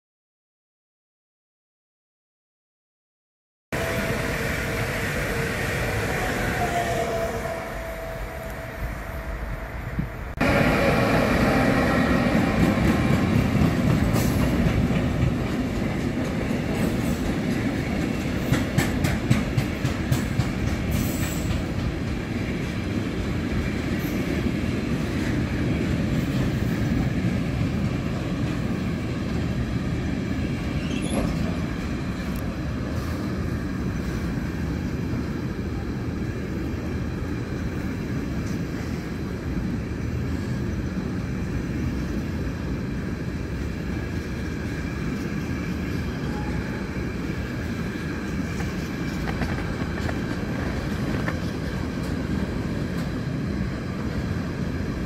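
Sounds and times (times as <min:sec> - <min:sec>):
train wheels rumbling on rail: 0:03.8 - 0:55.0
wheels clicking over rail joints: 0:12.4 - 0:22.8, 0:48.2 - 0:53.2.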